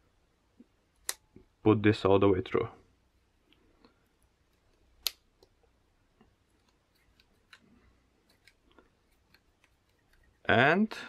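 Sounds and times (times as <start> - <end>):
sharp plastic click: 5.0 - 5.5.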